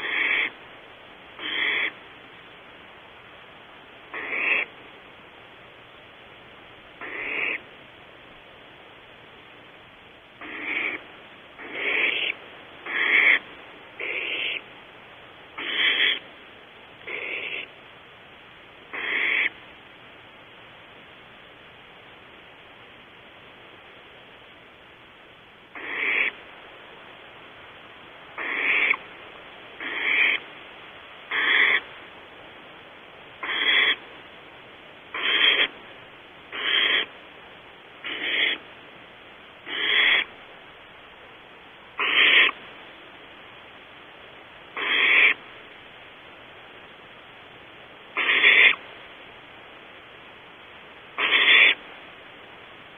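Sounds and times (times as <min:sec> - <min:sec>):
owl nestlings hissing begging calls: 0:00.0 - 0:00.6, 0:01.3 - 0:02.0, 0:04.1 - 0:04.8, 0:07.0 - 0:07.7, 0:10.4 - 0:14.7, 0:15.5 - 0:16.3, 0:17.0 - 0:17.8, 0:18.9 - 0:19.6, 0:25.7 - 0:26.4, 0:28.3 - 0:29.1, 0:29.8 - 0:30.5, 0:31.2 - 0:31.9, 0:33.4 - 0:34.1, 0:35.1 - 0:35.8, 0:36.5 - 0:37.2, 0:38.0 - 0:38.7, 0:39.6 - 0:40.4, 0:41.9 - 0:42.6, 0:44.7 - 0:45.4, 0:48.1 - 0:48.9, 0:51.1 - 0:51.9.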